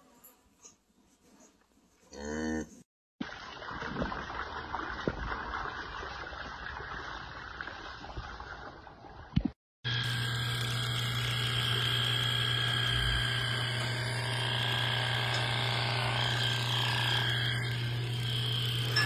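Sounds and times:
electric clippers shaving hair: 9.9 - 19.0.

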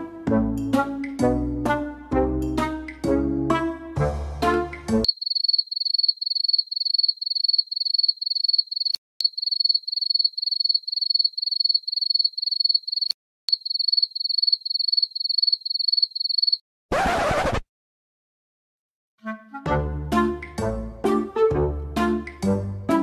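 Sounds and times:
cricket chirping: 5.0 - 16.6.

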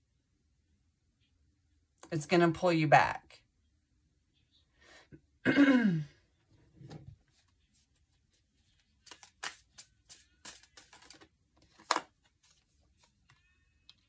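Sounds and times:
cards clicking and flicking: 9.0 - 12.6.

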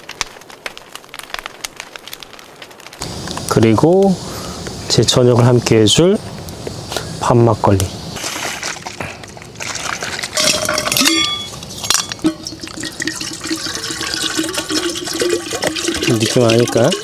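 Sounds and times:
bottle clinking: 10.4 - 17.0
liquid pouring into cup: 12.2 - 17.0.

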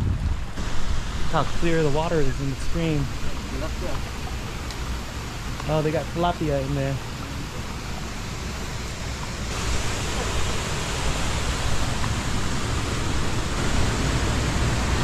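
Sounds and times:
stream and waterfall rushing: 0.0 - 15.0.

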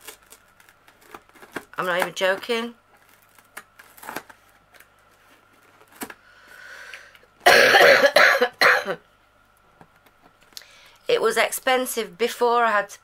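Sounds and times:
woman coughing: 7.4 - 9.0.

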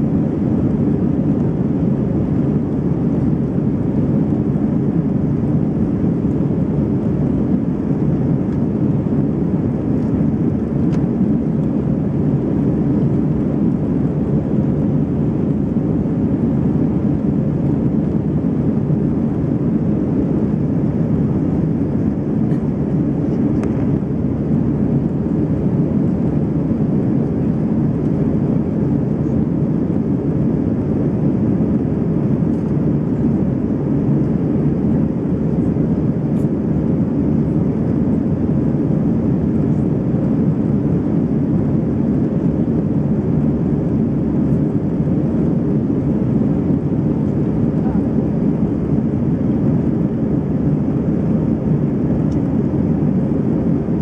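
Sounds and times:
airplane cabin engine and airflow noise: 0.0 - 54.0.

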